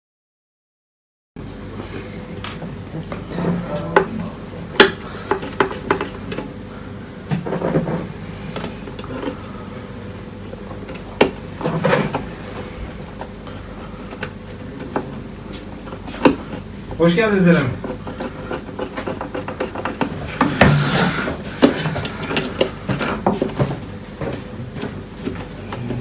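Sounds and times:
knocks and clatter of handling tools: 0:04.8 - 0:06.5, 0:17.8 - 0:25.4
screwdriver clicking and scraping: 0:17.8 - 0:20.2.

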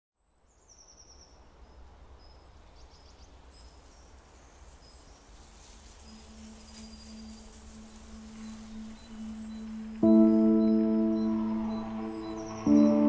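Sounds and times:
bird chirps: 0:06.0 - 0:13.0
low held musical note: 0:06.9 - 0:13.0.

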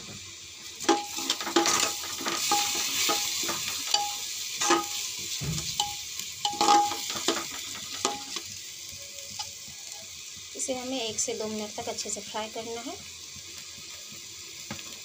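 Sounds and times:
rice sizzling: 0:00.0 - 0:15.0
metal spatula scraping a pot: 0:00.8 - 0:08.4.

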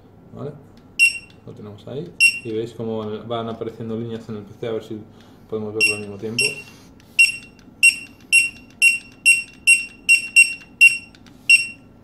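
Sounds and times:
barcode scanner beeps: 0:01.0 - 0:01.4, 0:02.2 - 0:02.6, 0:05.8 - 0:11.9.

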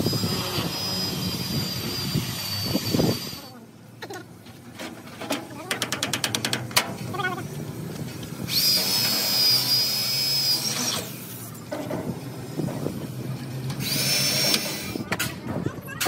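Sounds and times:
power drill whine: 0:00.0 - 0:03.6, 0:08.5 - 0:11.4, 0:13.7 - 0:15.1.

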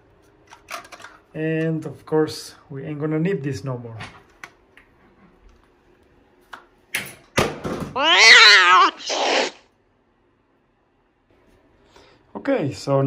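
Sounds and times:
cat meowing: 0:08.0 - 0:09.6.

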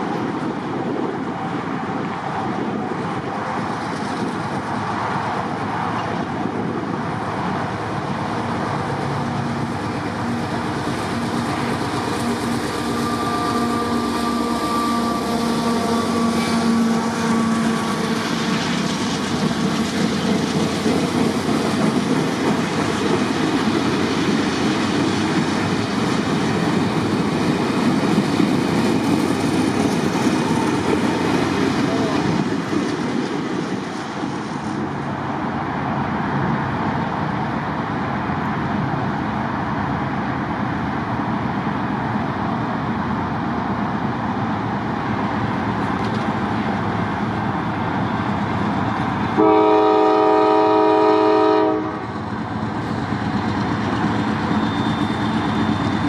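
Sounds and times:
freight train rumble: 0:00.0 - 0:56.0
locomotive air horn: 0:12.2 - 0:18.8, 0:49.4 - 0:52.1
railcar wheels clicking over joints: 0:15.2 - 0:35.2, 0:45.2 - 0:49.3.

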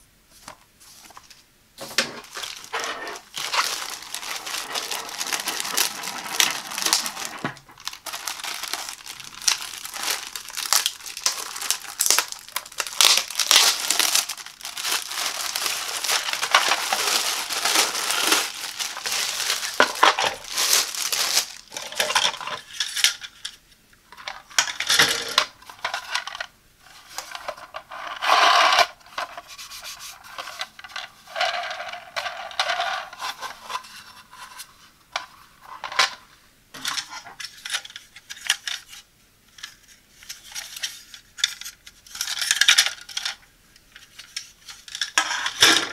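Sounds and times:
plastic wrap crinkling and tearing: 0:01.1 - 0:23.3, 0:39.7 - 0:43.4.

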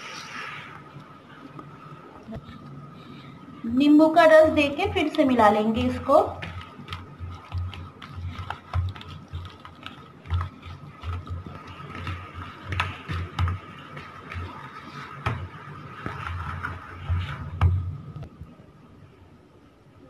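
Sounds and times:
hand squelching in marinade: 0:06.1 - 0:17.6
clicks and taps on plastic bowl: 0:06.4 - 0:14.5.

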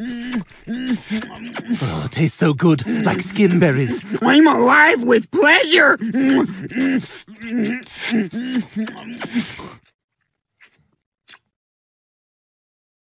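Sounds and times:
cartoon voice moaning: 0:02.8 - 0:09.6.

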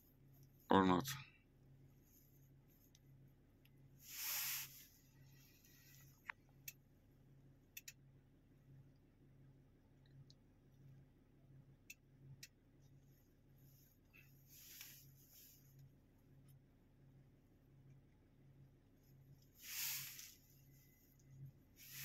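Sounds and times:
faint steady hum: 0:00.0 - 0:22.0
brief hiss: 0:04.0 - 0:05.0, 0:19.6 - 0:20.6, 0:21.8 - 0:22.0
faint clicks: 0:07.7 - 0:08.0.

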